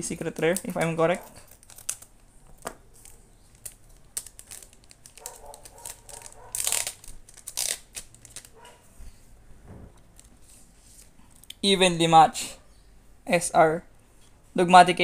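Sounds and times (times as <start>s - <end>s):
foil wrapper crinkling: 0.0s - 8.7s.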